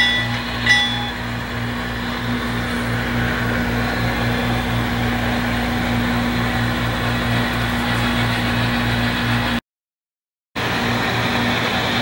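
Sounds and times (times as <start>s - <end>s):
speaker hum: 0.0s - 1.6s
model train diesel rumble: 0.0s - 9.6s, 10.6s - 12.0s.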